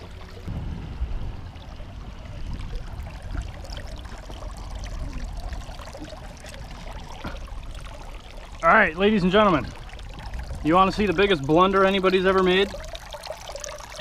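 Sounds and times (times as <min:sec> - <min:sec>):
water splashing around boat: 0:00.0 - 0:14.0
wind rumble on microphone: 0:00.4 - 0:08.6, 0:09.3 - 0:11.8.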